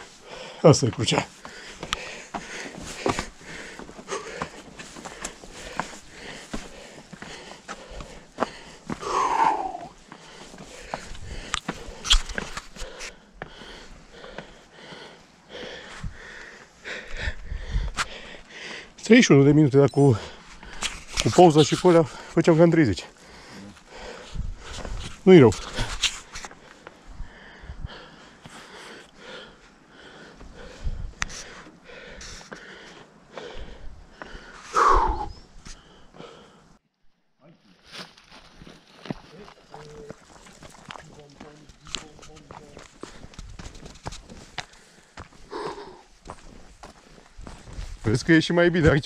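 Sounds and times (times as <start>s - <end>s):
person breathing heavily and sniffing: 1.3s - 19.0s, 23.1s - 36.8s, 42.3s - 48.0s.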